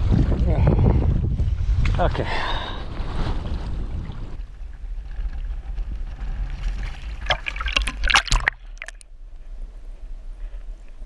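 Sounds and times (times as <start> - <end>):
water splashing around net: 6.8 - 9.0.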